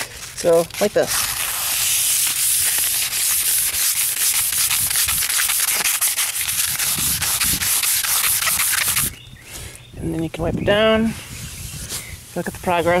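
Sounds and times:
sandpaper rubbing by hand: 0.0 - 9.1.

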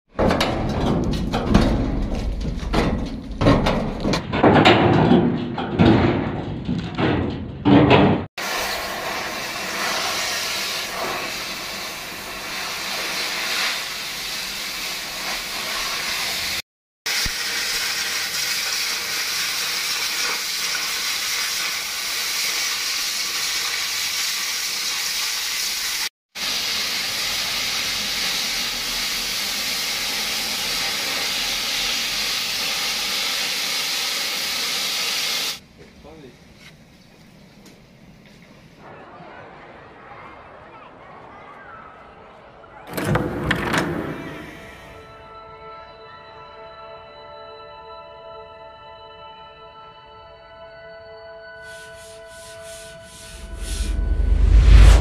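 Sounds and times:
rumbling with knocks: 0.1 - 8.3
cutting torch hissing: 8.4 - 35.6, 51.6 - 55.0.

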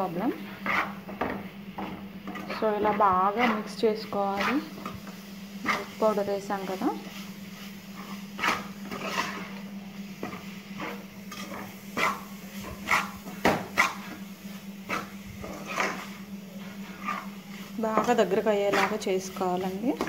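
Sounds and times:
spoon scraping steel pan: 2.2 - 5.0, 8.0 - 9.6, 14.9 - 16.2, 16.8 - 20.0.

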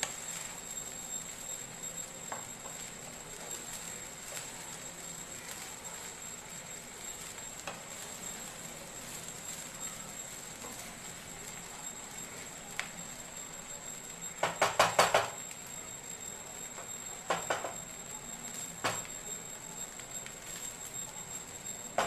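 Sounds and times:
steady frying hiss: 0.0 - 22.0
spatula scraping and knocking pan: 2.3 - 4.9.

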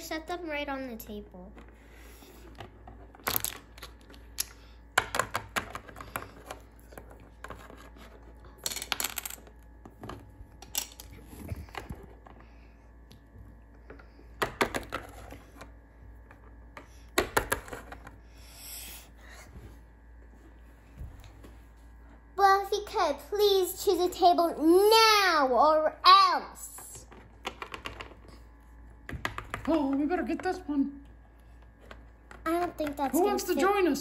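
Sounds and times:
plastic toys clicking on wooden table: 27.4 - 28.3.

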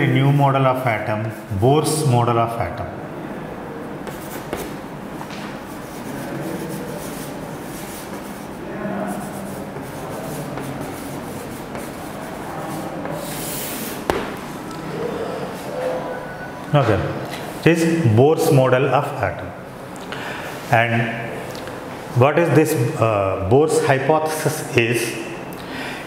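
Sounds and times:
chalk scraping on a chalkboard: 4.0 - 4.8, 5.6 - 14.2
chalk tapping on a board: 4.0 - 4.8, 9.2 - 12.4.

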